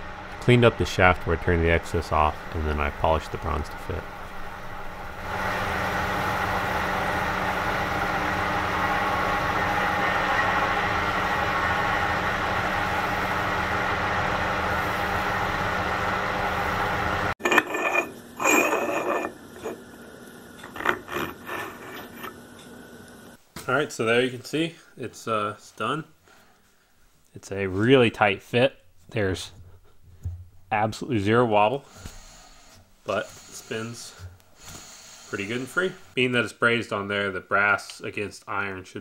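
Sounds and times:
lathe humming: 0.0s - 23.4s
abrasive cloth hissing: 31.9s - 36.2s.

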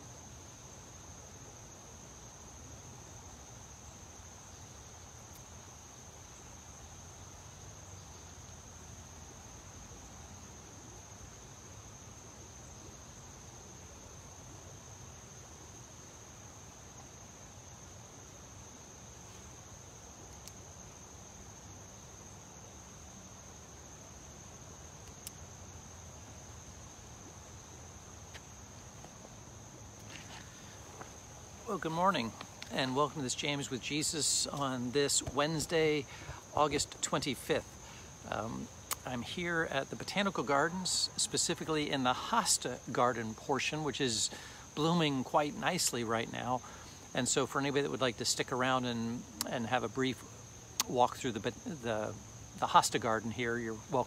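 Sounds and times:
faint low hiss: 0.0s - 54.0s
insect chorus trilling: 0.0s - 54.0s.

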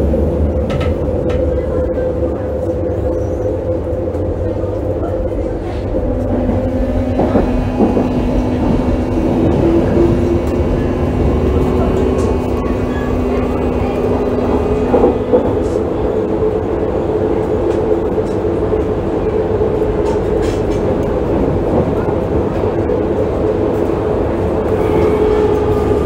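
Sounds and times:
train wheels rumbling on rail: 0.0s - 26.0s
train motor whine: 5.2s - 18.4s, 20.0s - 26.0s.

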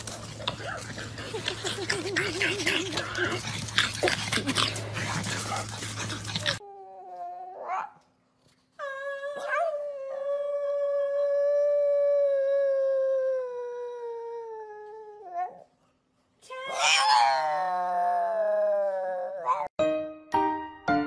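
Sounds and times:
dog howling: 8.8s - 15.6s, 16.7s - 19.7s.

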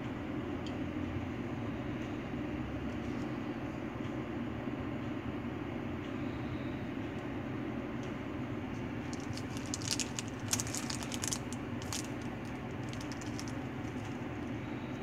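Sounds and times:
low background hum: 0.0s - 15.0s
plastic packaging crinkling: 9.1s - 14.6s.

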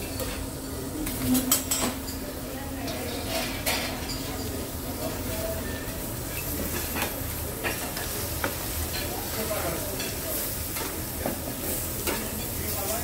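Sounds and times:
food sizzling on griddle: 4.8s - 13.0s.

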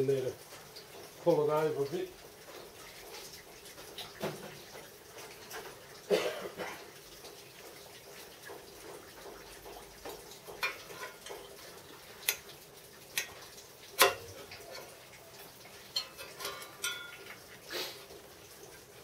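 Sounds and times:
tool tapping on metal: 10.5s - 11.4s, 14.0s - 15.0s, 15.9s - 17.4s.

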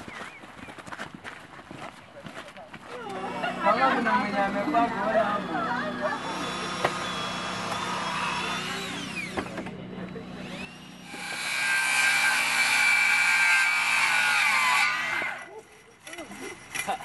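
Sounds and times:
circular saw cutting wood: 3.0s - 15.6s
cordless drill boring into wood: 3.1s - 9.7s, 10.4s - 11.5s.

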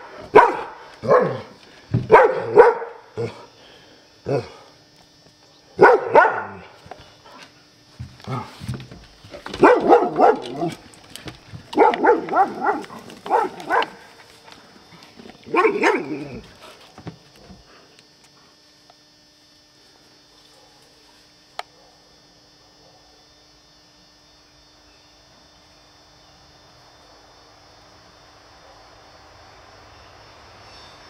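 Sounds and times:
dog barking rapidly: 0.3s - 1.5s, 2.1s - 3.0s, 5.8s - 6.6s, 9.5s - 10.8s, 11.7s - 14.0s, 15.5s - 16.2s.

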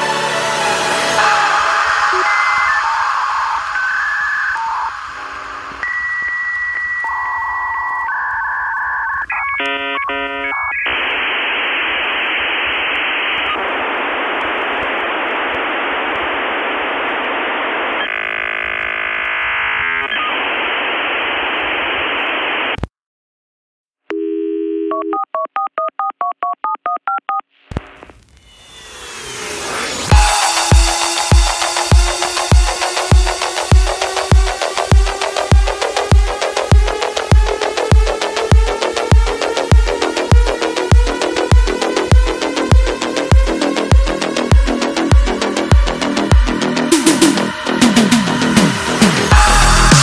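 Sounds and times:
harsh modem hiss: 0.0s - 22.8s, 27.7s - 50.0s
dial-up modem tones and beeps: 2.0s - 13.8s, 17.6s - 20.8s, 24.1s - 27.4s.

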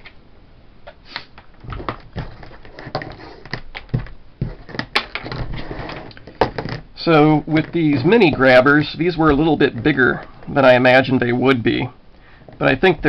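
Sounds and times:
small clicks taps and rubbing: 0.9s - 6.8s.

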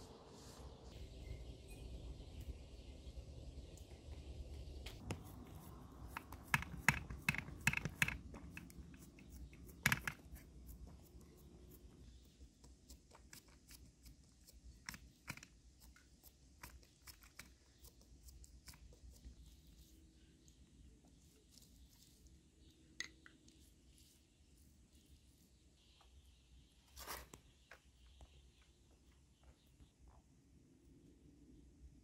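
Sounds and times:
hands tapping dough in metal tray: 6.1s - 8.7s.

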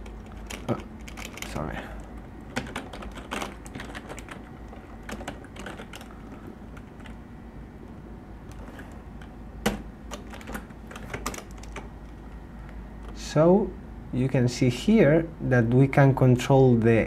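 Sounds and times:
typing on computer keyboard: 0.0s - 7.2s, 8.5s - 11.9s.

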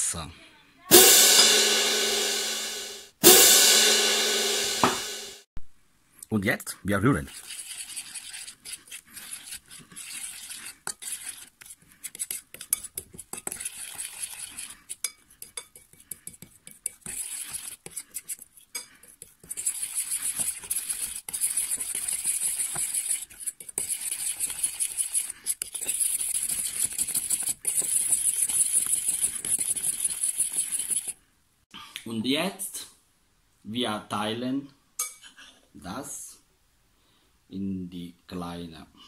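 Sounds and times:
fork stirring paste in glass bowl: 7.1s - 31.2s.

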